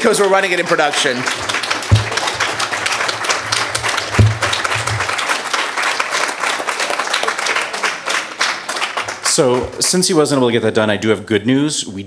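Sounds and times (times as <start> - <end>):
audience applauding: 0.0 - 10.4
low thump: 1.9 - 2.6, 3.7 - 5.1.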